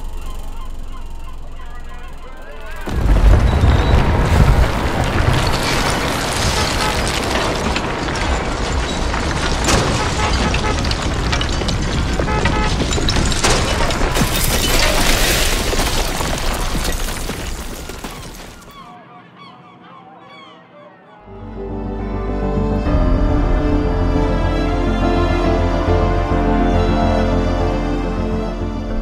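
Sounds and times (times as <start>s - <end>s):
honking bird calls: 0.0s - 2.9s, 18.6s - 21.4s
earthquake rumble: 0.0s - 18.7s
sharp impacts: 0.0s - 18.7s
masonry crashing and clattering: 2.8s - 18.7s.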